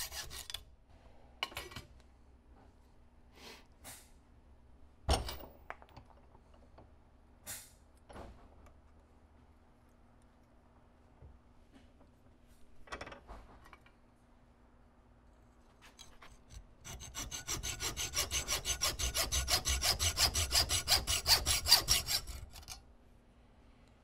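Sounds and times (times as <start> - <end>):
hacksaw cutting metal: 0.0 - 0.6, 16.0 - 22.8.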